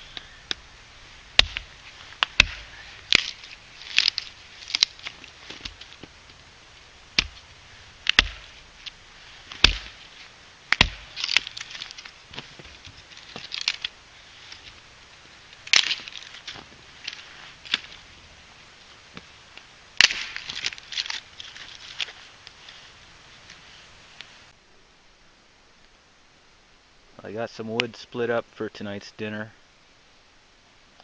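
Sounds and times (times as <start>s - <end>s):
wood splitting rasp: 1.3s - 6.2s, 7.1s - 8.8s, 9.4s - 13.9s
axe chopping wood: 1.4s - 6.2s, 7.1s - 8.6s, 9.5s - 10.0s, 10.7s - 12.7s, 15.7s - 16.2s, 20.0s - 20.9s.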